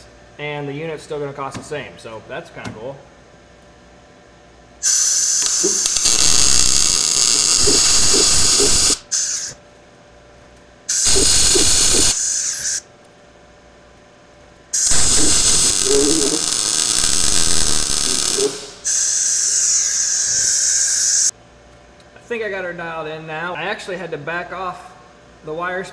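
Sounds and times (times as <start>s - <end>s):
welding arc crackling and hissing: 4.8s - 9.6s, 10.9s - 12.8s, 14.7s - 21.3s.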